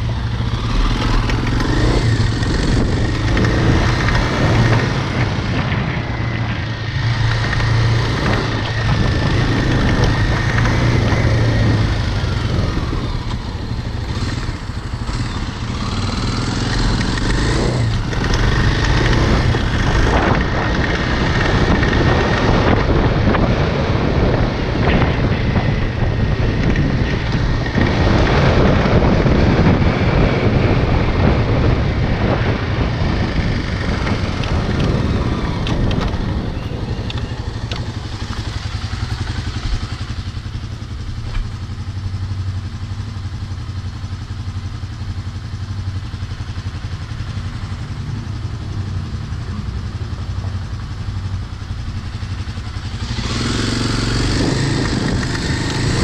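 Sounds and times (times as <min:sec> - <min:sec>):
motorcycle engine: 0:00.0 - 0:56.0
wind noise on microphone: 0:00.0 - 0:56.0.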